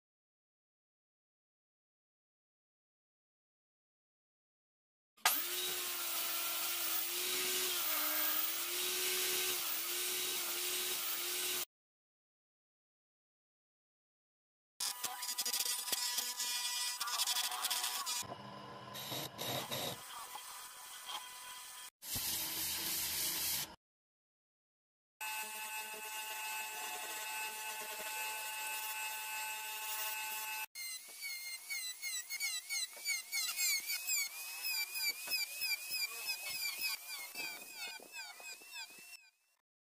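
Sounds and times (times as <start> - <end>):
table saw cutting wood: 5.2 - 11.7, 14.8 - 23.8, 25.2 - 39.4
wood lathe whine: 25.2 - 39.2.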